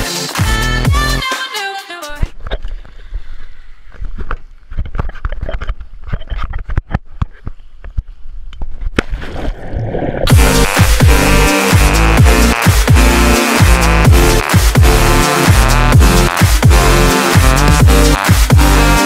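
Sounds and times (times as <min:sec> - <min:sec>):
electronic dance music: 0:00.0 - 0:02.2, 0:10.3 - 0:19.0
underwater rumble: 0:09.1 - 0:10.3.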